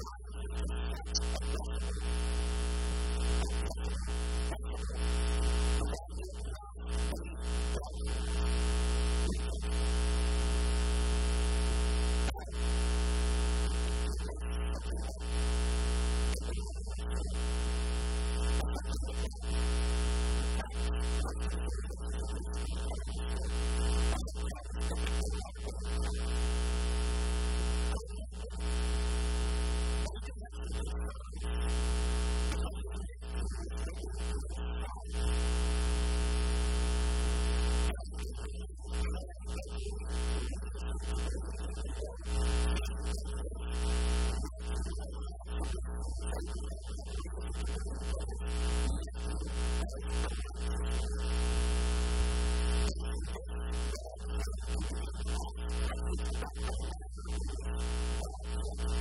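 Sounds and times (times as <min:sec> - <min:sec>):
loud electrical hum: 0:00.0 - 0:32.7, 0:33.4 - 0:38.4, 0:40.0 - 0:44.8, 0:47.4 - 0:52.9, 0:53.6 - 0:59.0
man's voice: 0:29.9 - 0:35.4, 0:37.5 - 0:51.4.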